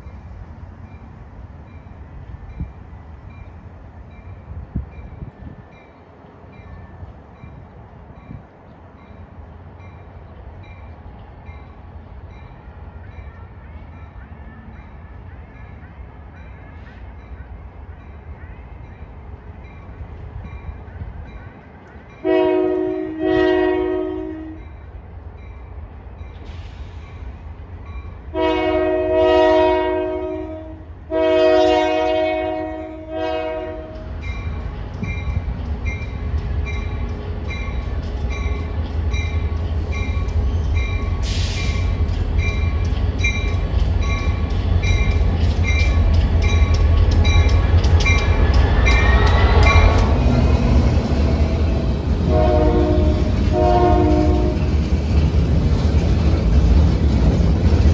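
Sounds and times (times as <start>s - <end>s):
locomotive engine and wheels rumbling: 0.0s - 57.9s
locomotive air horn blasts: 22.2s - 24.7s, 28.3s - 34.1s, 48.9s - 54.7s.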